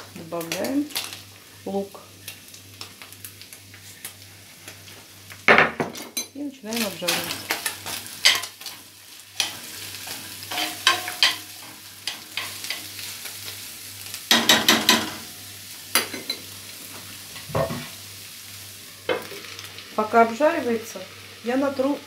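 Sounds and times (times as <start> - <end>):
meat and onion sizzling: 0.0 - 22.0
metal utensil scraping a pan: 9.4 - 12.9.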